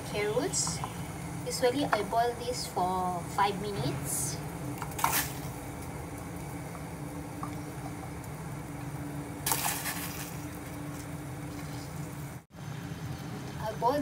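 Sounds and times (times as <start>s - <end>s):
low steady hum: 0.0s - 14.0s
water boiling and bubbling: 0.0s - 14.0s
carrots splashing into water: 9.4s - 10.4s.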